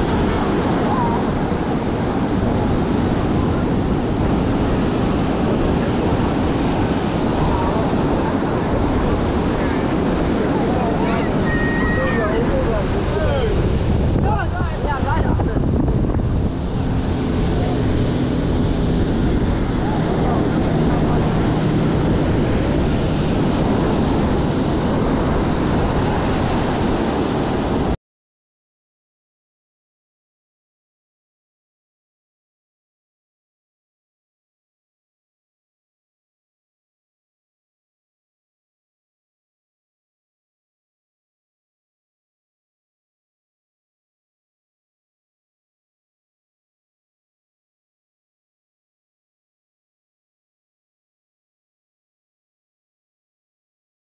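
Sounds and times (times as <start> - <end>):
surf breaking on beach: 0.0 - 28.0
wind rumbling on microphone: 0.0 - 28.0.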